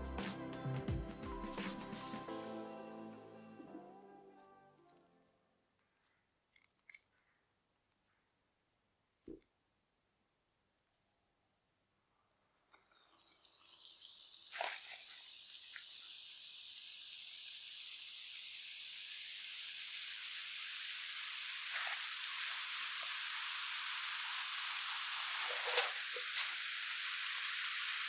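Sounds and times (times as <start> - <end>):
bath bomb fizzing in water: 12.8 - 28.0
brief crackles: 25.4 - 26.5.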